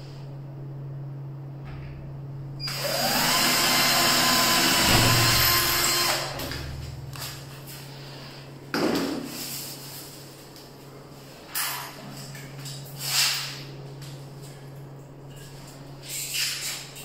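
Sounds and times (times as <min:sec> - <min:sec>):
cordless drill boring into metal: 0:02.7 - 0:06.3.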